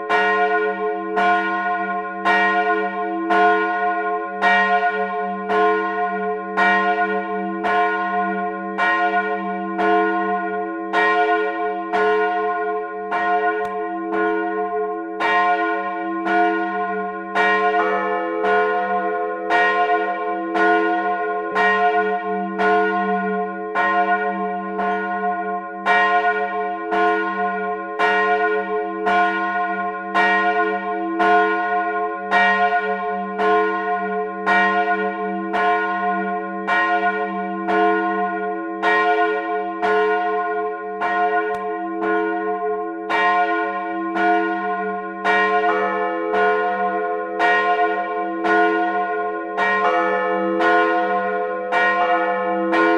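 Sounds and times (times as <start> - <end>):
church bells ringing: 0.0 - 52.9.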